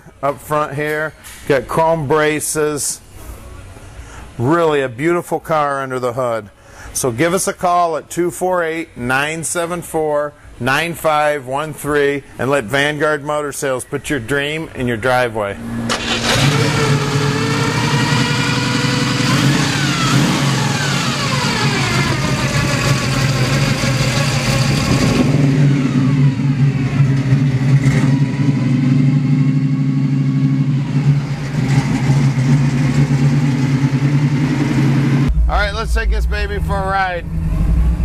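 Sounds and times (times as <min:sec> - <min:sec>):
car engine revving: 0:15.6 - 0:38.0
high whine of timing gears: 0:15.6 - 0:38.0.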